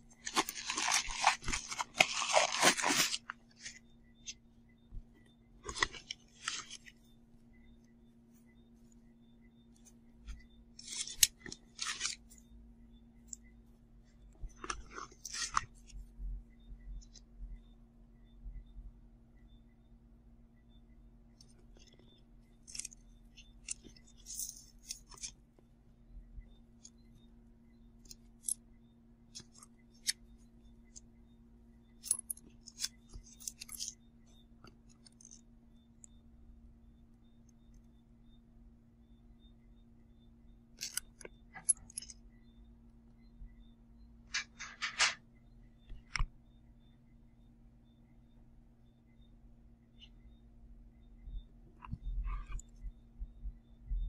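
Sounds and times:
faint steady hum: 0.0s - 54.0s
leather bag rustling and scraping: 0.2s - 3.2s
handbag handling clicks and crinkles: 0.2s - 3.7s, 5.6s - 6.9s, 10.8s - 12.3s, 14.6s - 15.9s, 32.0s - 33.9s.

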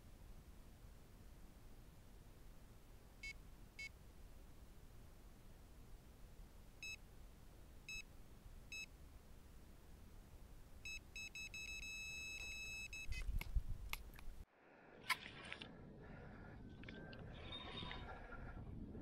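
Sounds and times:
bite alarm beeps: 10.8s - 13.3s.

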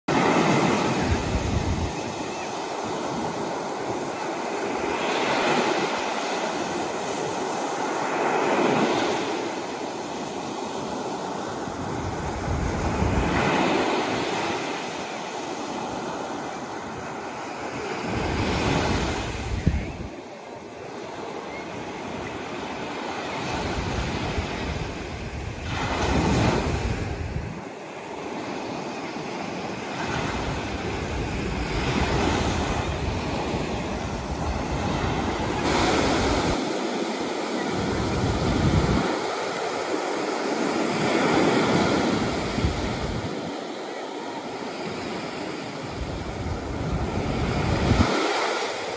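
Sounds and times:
wind buffeting microphone: 0.1s - 7.6s, 10.8s - 14.9s, 18.0s - 20.2s, 23.4s - 27.8s, 29.5s - 43.6s, 44.9s - 48.9s
surf washing up a beach: 0.1s - 48.9s.

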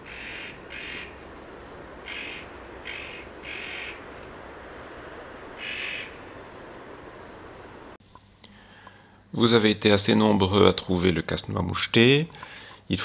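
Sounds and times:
bird giving harsh rasping calls: 0.0s - 1.2s, 2.0s - 4.1s, 5.6s - 6.2s.

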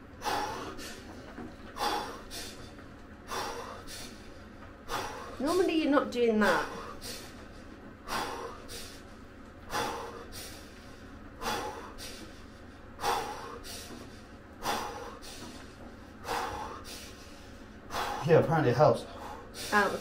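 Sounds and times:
man breathing deeply: 0.0s - 5.7s, 6.4s - 20.0s.

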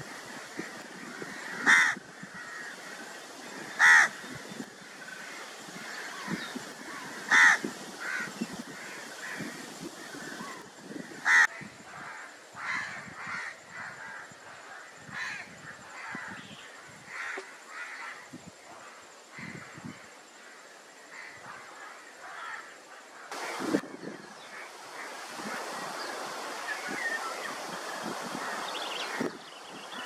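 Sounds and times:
birds calling: 0.0s - 10.6s, 23.3s - 30.0s.

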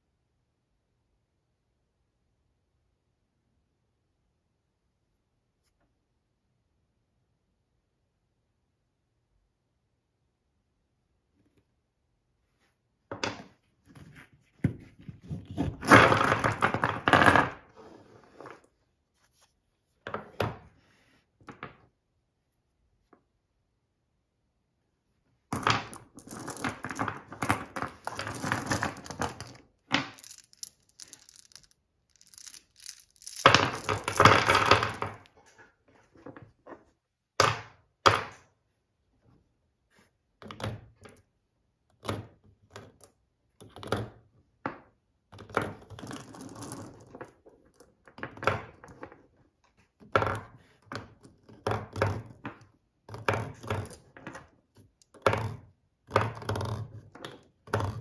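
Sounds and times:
metal cartridges clinking on wood: 25.6s - 35.3s
cartridges rattling: 29.0s - 34.6s.

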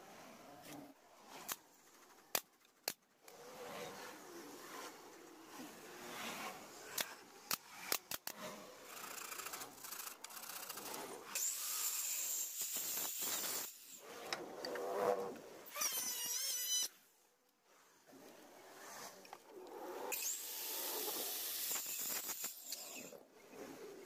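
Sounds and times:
circular saw cutting wood: 5.8s - 14.3s
pneumatic nailer firing: 11.4s - 13.8s, 21.5s - 23.0s.

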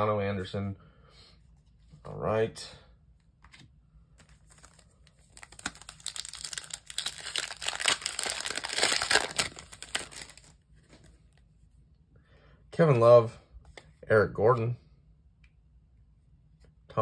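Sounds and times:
foil wrapper crinkling and tearing: 4.3s - 10.6s.

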